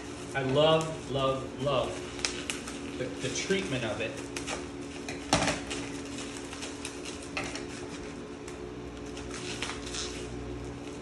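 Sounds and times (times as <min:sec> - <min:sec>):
plastic wrap crinkling: 0:00.0 - 0:11.0
sharp crackle: 0:01.9 - 0:04.5, 0:09.0 - 0:10.4.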